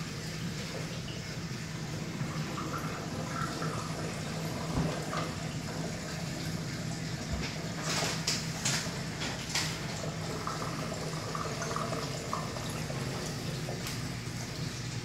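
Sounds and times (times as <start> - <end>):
low pump hum: 0.0 - 15.0
water running and splashing: 0.0 - 15.0.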